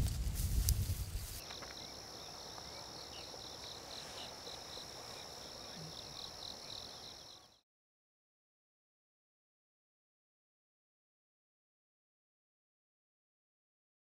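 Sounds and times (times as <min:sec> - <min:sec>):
rustling: 0:00.0 - 0:01.9
insects chirping: 0:00.1 - 0:07.6.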